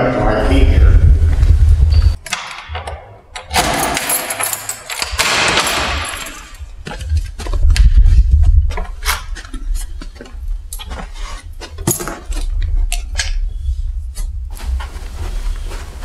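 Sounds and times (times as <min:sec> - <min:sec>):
low rumble: 0:00.0 - 0:02.2, 0:05.0 - 0:10.8
keys jangling: 0:03.4 - 0:06.8, 0:11.8 - 0:12.5.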